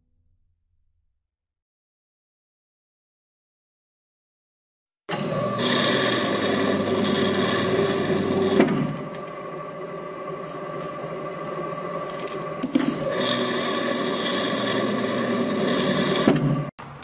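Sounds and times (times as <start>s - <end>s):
thread-rolling machine drone: 5.1s - 16.7s.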